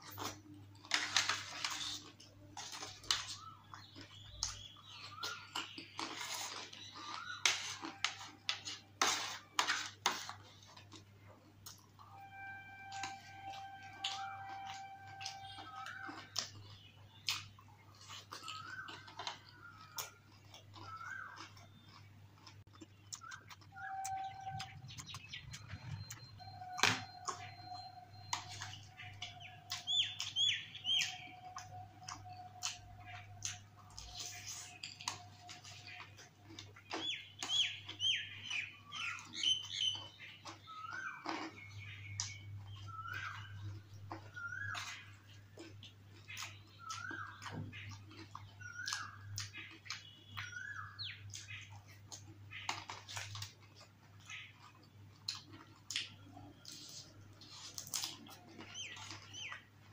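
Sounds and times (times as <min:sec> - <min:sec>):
whistled bird calls: 0:23.2 - 0:36.2, 0:40.7 - 0:43.6, 0:44.2 - 0:45.3, 0:46.4 - 0:47.9, 0:48.6 - 0:51.6.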